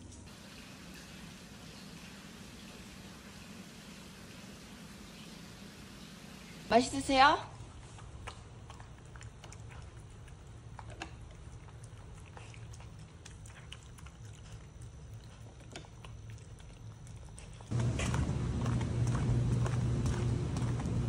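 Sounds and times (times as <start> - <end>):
low steady hum: 0.0 - 21.0
dog chewing food: 7.6 - 21.0
footsteps on brick paving: 17.4 - 21.0.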